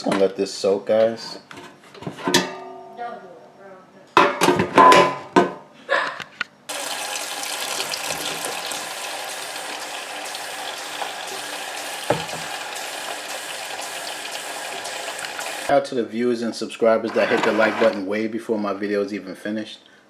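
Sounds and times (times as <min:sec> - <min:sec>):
tap water running: 0:06.7 - 0:15.7.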